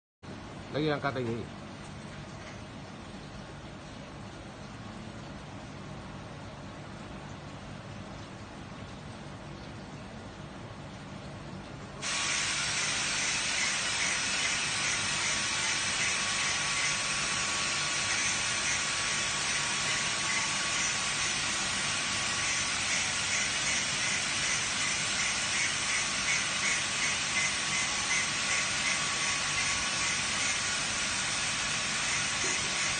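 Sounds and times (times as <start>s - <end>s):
steady hiss: 12.0s - 32.9s.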